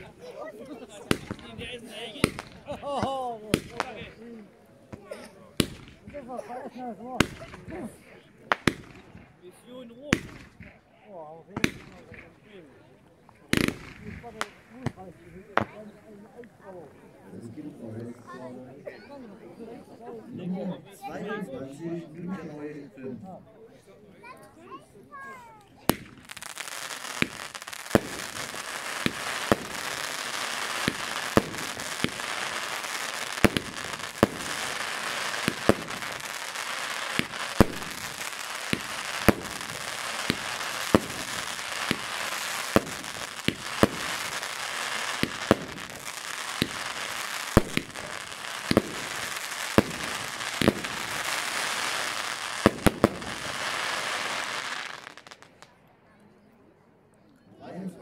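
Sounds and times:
hissing firework crackle: 1.0s - 2.8s, 5.6s - 6.1s, 8.5s - 9.4s, 10.1s - 10.8s, 13.4s - 15.7s, 25.9s - 55.7s
firework shot reports: 37.1s - 53.8s.

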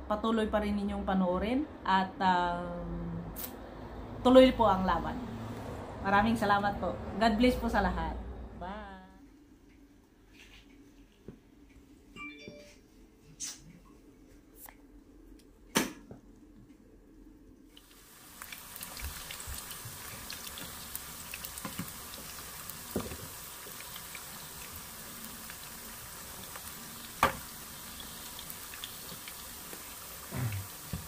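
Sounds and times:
potato wedges sizzling in oil: 17.7s - 31.0s.

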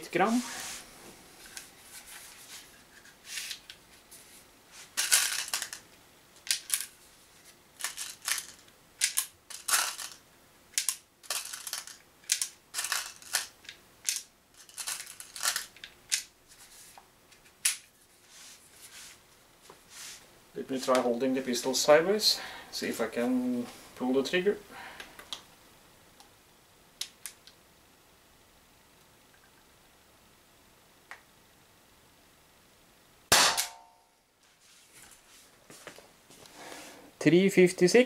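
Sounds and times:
pistol handling clicks and rattles: 7.8s - 16.3s.

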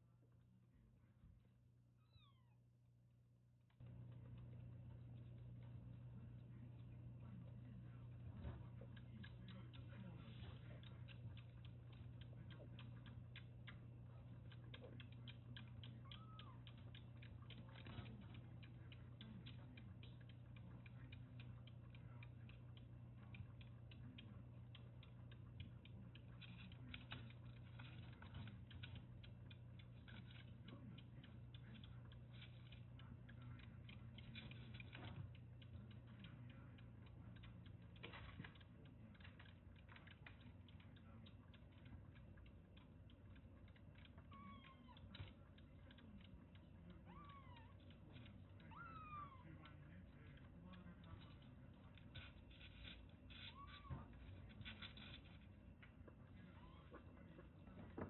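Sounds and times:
kitten suckling from bottle: 3.8s - 58.0s
kitten mewing: 16.0s - 16.7s, 48.6s - 49.5s.

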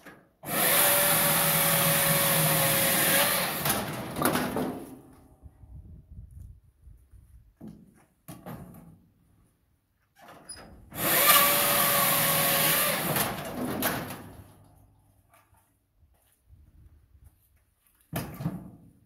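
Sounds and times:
machine chopping wood: 0.5s - 4.8s.

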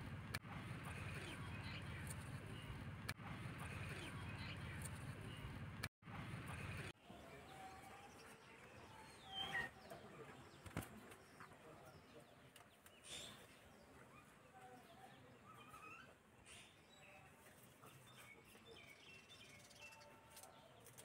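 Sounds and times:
faint bird chirps: 12.9s - 20.5s.

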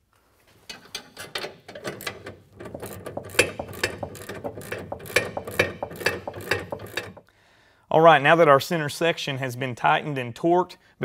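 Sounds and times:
socket ratchet clicking: 1.2s - 7.3s.

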